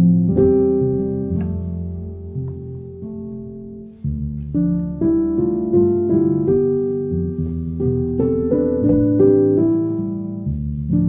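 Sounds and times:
slow gentle piano piece: 0.0 - 11.0.

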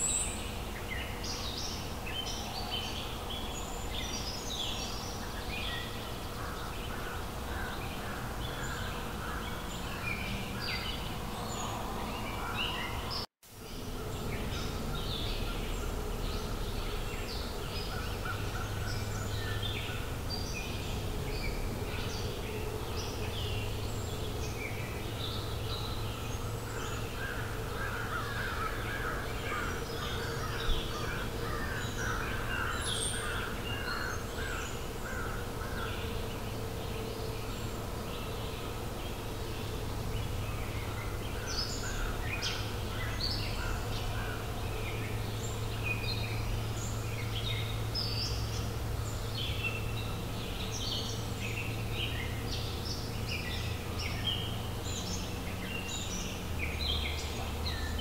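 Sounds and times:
forest birds chirping: 0.0 - 58.0.

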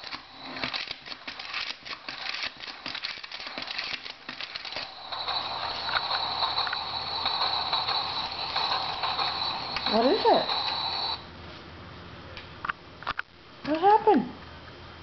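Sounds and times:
spinning top humming: 0.0 - 11.2.

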